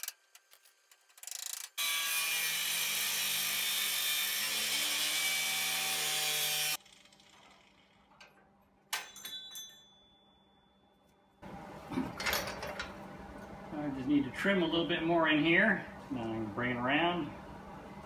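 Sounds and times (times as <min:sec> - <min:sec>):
angle grinder cutting steel: 0:01.4 - 0:07.8
metal clank ringing: 0:08.9 - 0:10.7.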